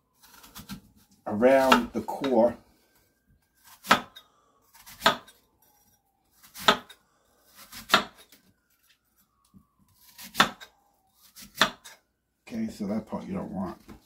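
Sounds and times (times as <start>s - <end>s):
knife cutting apple: 0.2s - 2.4s, 3.6s - 8.9s, 9.9s - 12.0s.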